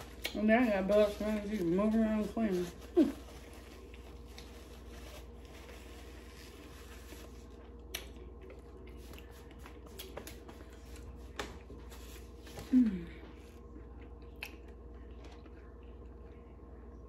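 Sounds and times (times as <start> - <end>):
paper napkin rustling: 0.0 - 7.6
steady low hum: 0.0 - 17.0.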